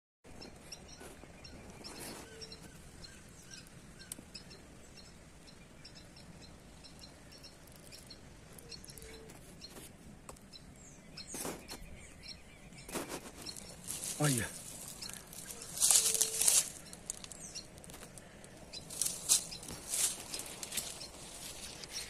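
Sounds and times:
low outdoor background: 0.2s - 22.0s
small birds chirping: 0.3s - 22.0s
brief rustles: 12.8s - 18.2s.

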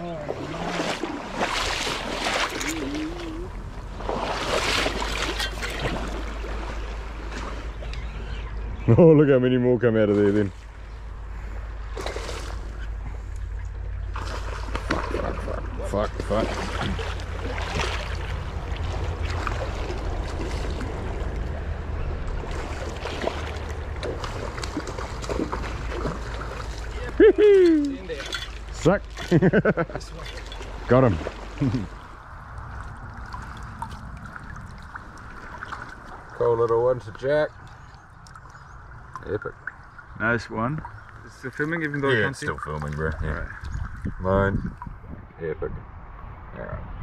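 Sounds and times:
water splashing around legs: 0.0s - 8.0s, 11.9s - 21.6s, 22.2s - 44.2s
stream flowing: 0.0s - 8.8s, 10.1s - 45.0s
low rumble: 10.5s - 27.6s.

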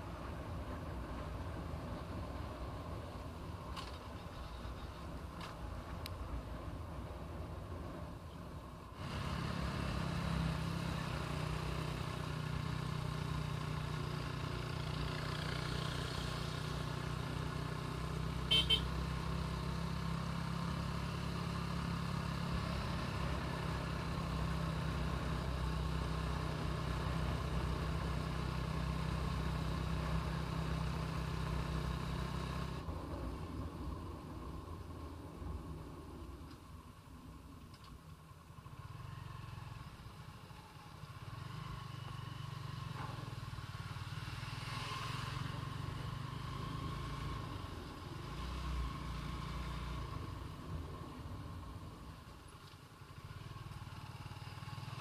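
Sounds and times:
road and wind noise: 0.0s - 55.0s
motorcycle engine cruising: 9.0s - 36.1s, 38.5s - 55.0s.

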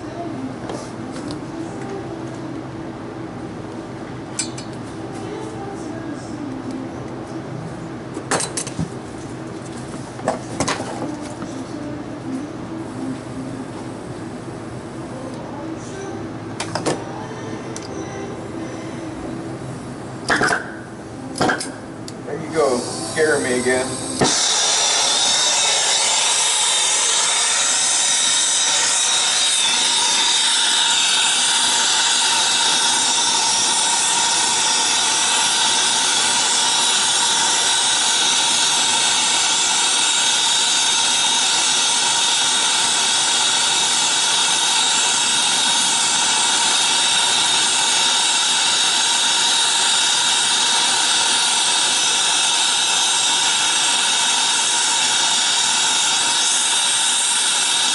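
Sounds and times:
torch flame hissing: 22.3s - 57.9s.

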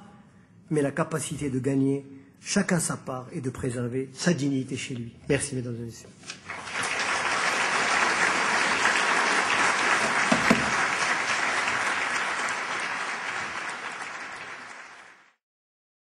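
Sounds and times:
audience applauding: 6.4s - 15.4s.

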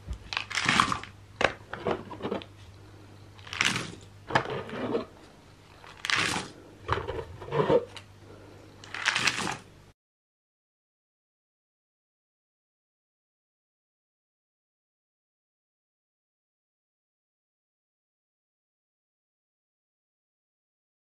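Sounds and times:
faint steady hum: 0.0s - 10.0s
puzzle pieces pouring into box: 8.9s - 9.6s.

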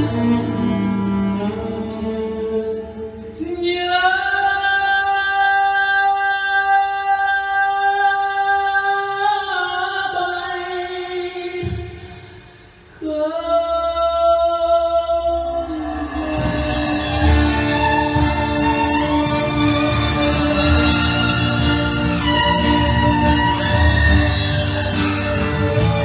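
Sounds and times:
band playing a ballad: 0.0s - 10.0s, 14.9s - 26.0s
man singing a long high note: 0.0s - 12.2s, 13.0s - 18.1s.

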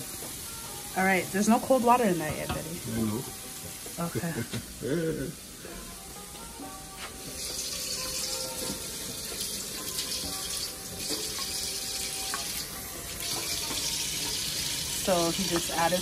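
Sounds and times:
tap water running into bowl: 7.3s - 16.0s.

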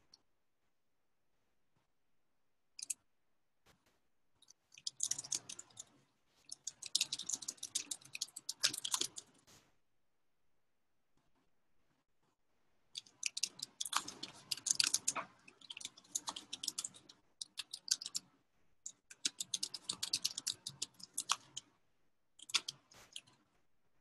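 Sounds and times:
keyboard typing: 4.4s - 5.9s, 6.5s - 9.4s, 13.0s - 18.3s, 18.9s - 21.7s, 22.4s - 23.4s.

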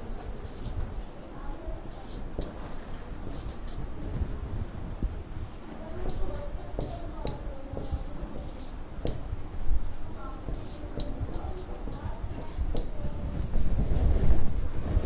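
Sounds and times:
marker squeaking on whiteboard: 0.0s - 4.0s, 5.8s - 13.2s.

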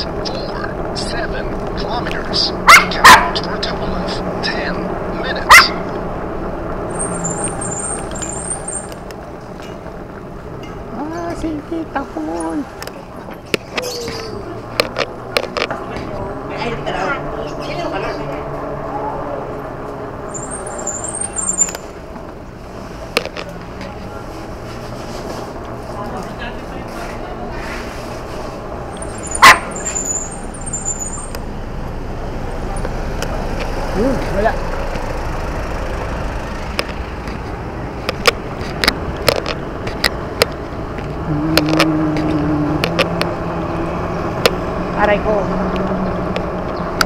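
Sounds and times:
road traffic noise: 0.0s - 47.0s
vehicle engines running: 0.0s - 47.0s
high chirps: 6.9s - 9.1s, 20.3s - 22.0s, 28.9s - 31.5s
sharp irregular clicks and knocks: 14.8s - 15.8s, 36.7s - 43.3s.

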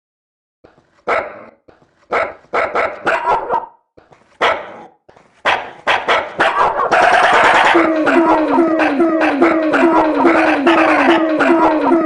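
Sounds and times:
small dog barking: 1.1s - 1.5s, 2.1s - 3.8s, 4.4s - 8.5s.

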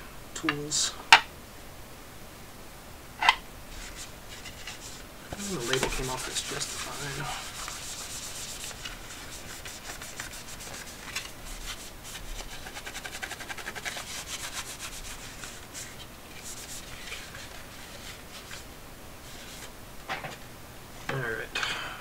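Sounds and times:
cloth scrubbing plastic case: 3.7s - 19.7s.

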